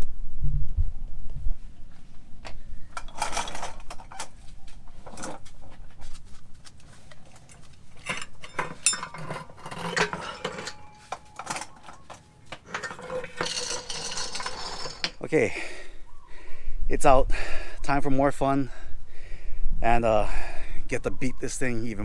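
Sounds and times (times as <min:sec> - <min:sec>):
metal parts clinking and knocking: 0:02.9 - 0:05.5, 0:07.3 - 0:15.3.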